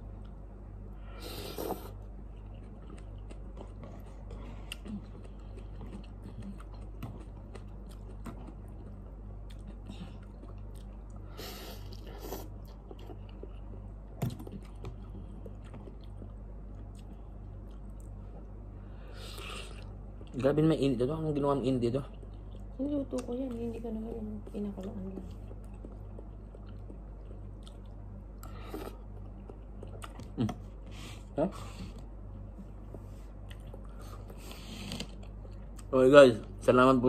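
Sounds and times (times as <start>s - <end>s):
steady low hum: 0.0s - 37.0s
man chewing noodles: 0.1s - 20.5s, 21.3s - 22.8s, 25.2s - 35.9s.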